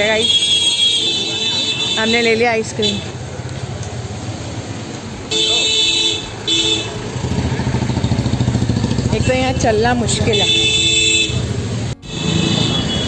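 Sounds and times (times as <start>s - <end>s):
street traffic: 0.0s - 13.0s
motorcycle engine running: 6.9s - 10.8s
vehicle horn toots: 10.2s - 13.0s.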